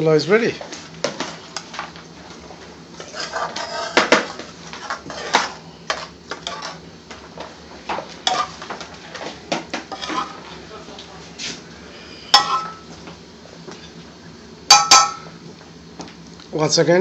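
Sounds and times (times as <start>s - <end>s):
metal utensils and pans clinking: 3.0s - 6.8s, 8.3s - 8.7s, 9.9s - 10.4s, 12.3s - 12.9s, 14.7s - 15.3s.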